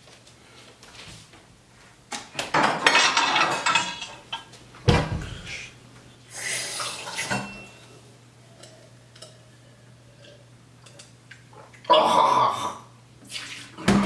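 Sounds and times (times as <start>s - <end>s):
dishes and cutlery clattering: 2.5s - 4.5s
tap water running: 6.3s - 7.5s.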